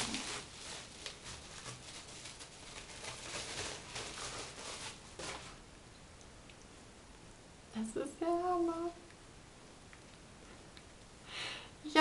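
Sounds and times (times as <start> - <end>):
packaging rustling: 0.0 - 5.7.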